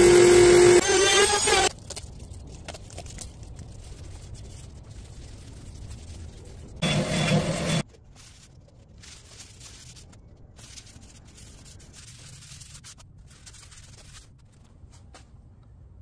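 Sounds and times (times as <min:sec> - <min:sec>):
orbital sander running: 0:00.0 - 0:01.7.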